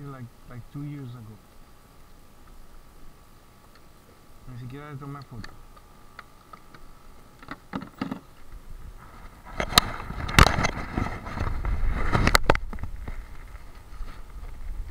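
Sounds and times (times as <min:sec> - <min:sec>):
handling noise on microphone: 0:05.1 - 0:14.9.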